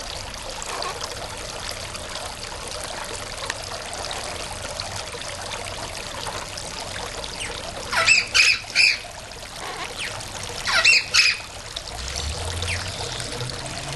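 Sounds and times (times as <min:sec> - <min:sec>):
running water trickling: 0:00.0 - 0:13.9
parrot calling loudly: 0:07.4 - 0:11.5.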